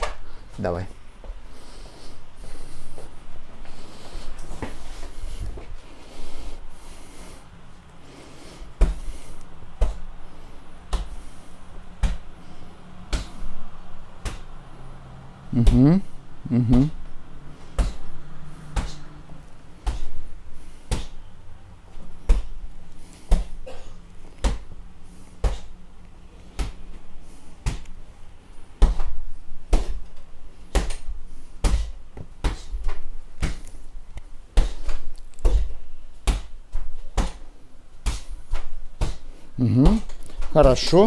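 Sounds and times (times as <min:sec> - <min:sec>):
hand strikes on punching bag: 0:10.9 - 0:11.2, 0:12.0 - 0:12.3, 0:17.7 - 0:18.1, 0:18.7 - 0:19.0, 0:19.8 - 0:20.1, 0:20.9 - 0:21.2, 0:24.4 - 0:24.7, 0:25.4 - 0:25.7, 0:27.6 - 0:27.8, 0:28.8 - 0:30.1, 0:30.7 - 0:33.6, 0:34.5 - 0:40.9.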